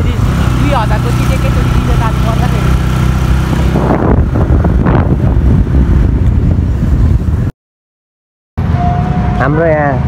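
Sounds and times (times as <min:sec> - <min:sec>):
road noise: 0:00.0 - 0:07.5, 0:08.6 - 0:10.0
wind buffeting microphone: 0:00.2 - 0:07.5.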